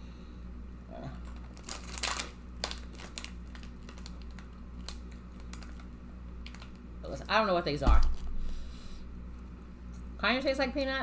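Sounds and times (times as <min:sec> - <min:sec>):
plastic snack packet crinkling: 0:01.2 - 0:07.3.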